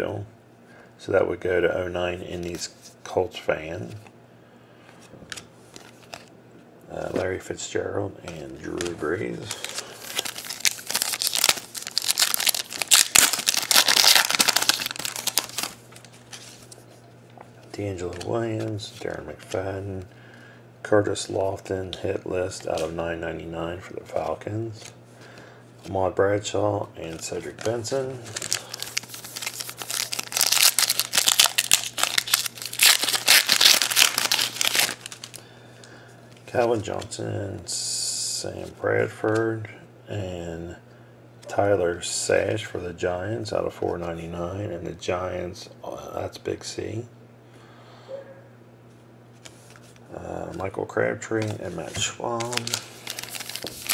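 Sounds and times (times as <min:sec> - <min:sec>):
plastic foil wrapper crinkling: 0:08.7 - 0:16.8, 0:27.1 - 0:35.4, 0:52.2 - 0:53.9.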